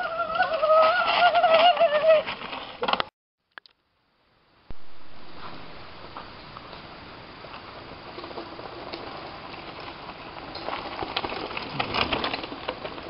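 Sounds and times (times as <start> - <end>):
bike tyres crunching on gravel: 5.2 - 13.0.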